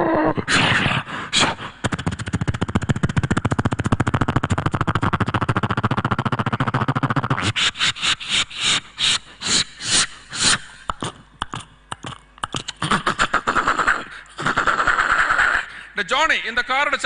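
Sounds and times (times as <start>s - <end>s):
buzzing engine-like vocal drone: 0.0s - 16.0s
quick patter of mouth clicks: 10.9s - 15.4s
breathy vocal hissing bursts: 12.8s - 16.0s.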